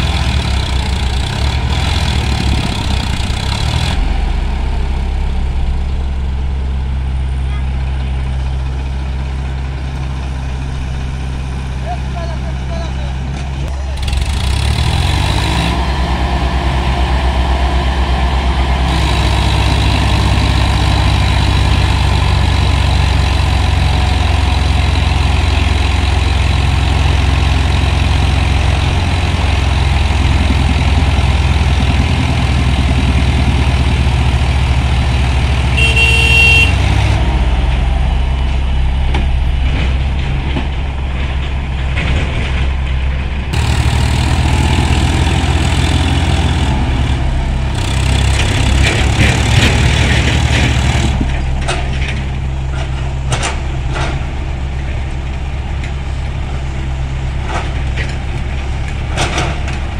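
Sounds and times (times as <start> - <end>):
tractor diesel engine under load: 0.0 - 59.9
tractor horn toot: 35.7 - 36.9.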